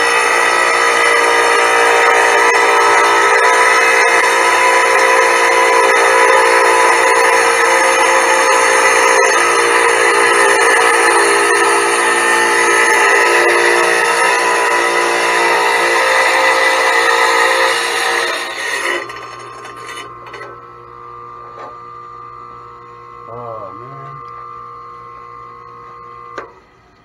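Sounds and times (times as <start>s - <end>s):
tile saw grinding through stone: 0.0s - 20.6s.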